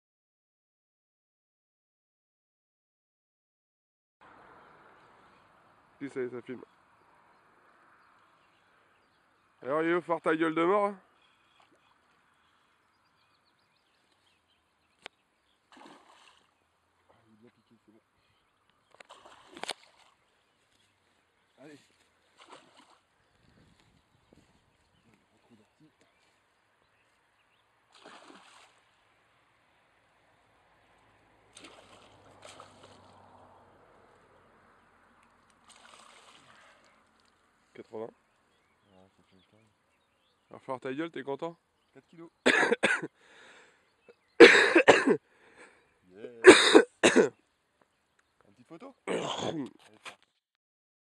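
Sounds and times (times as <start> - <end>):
faint birdsong: 4.2 - 50.4
fish splashing at surface: 15.7 - 16.6, 19.0 - 20.2, 22.3 - 23.1, 27.9 - 28.9, 31.5 - 33.4, 35.6 - 36.9.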